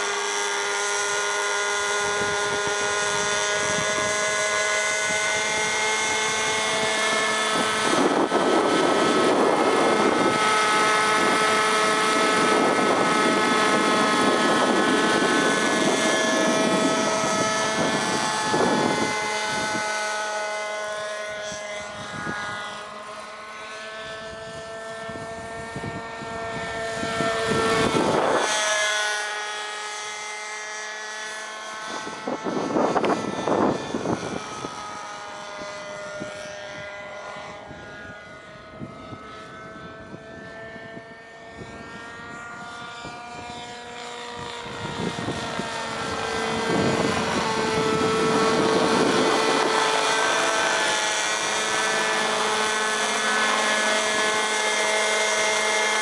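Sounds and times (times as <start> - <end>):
model helicopter motor whine: 0.0 - 56.0
rotor blades chopping: 44.1 - 56.0.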